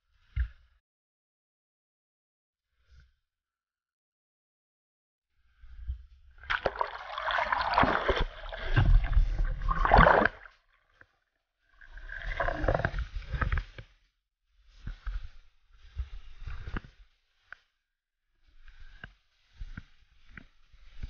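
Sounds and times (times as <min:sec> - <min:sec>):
bubbling: 0:06.5 - 0:10.6, 0:11.8 - 0:13.1
underwater splashing and rushing: 0:06.5 - 0:10.6, 0:11.8 - 0:13.4.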